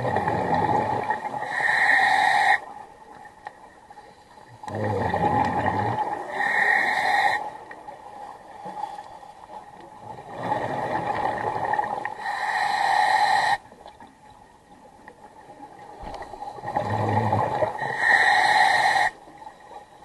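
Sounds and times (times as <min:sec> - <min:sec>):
scuba regulator breathing: 0:01.4 - 0:02.6, 0:03.9 - 0:07.6, 0:12.1 - 0:13.6, 0:16.0 - 0:20.0.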